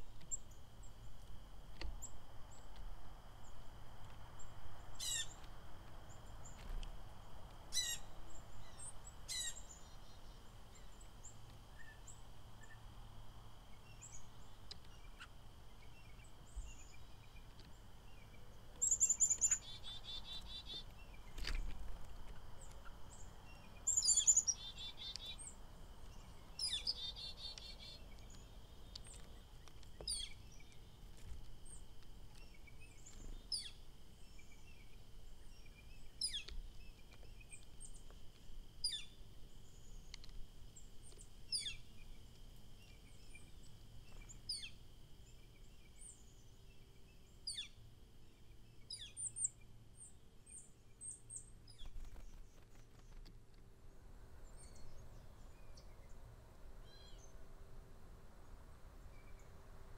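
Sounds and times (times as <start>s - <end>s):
bird chirpy trills: 7.7s - 12.8s, 13.7s - 21.4s, 22.6s - 25.6s, 26.2s - 29.2s.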